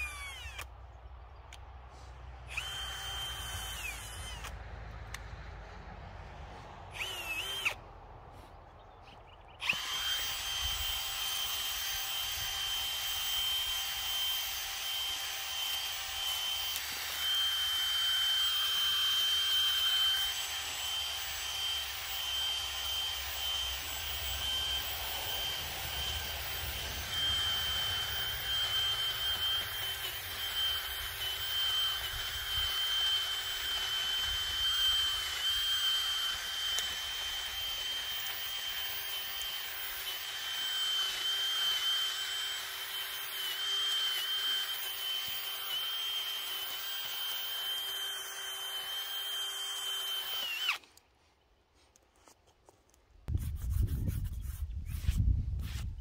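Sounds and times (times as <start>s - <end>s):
chainsaw revving: 9.6s - 50.8s.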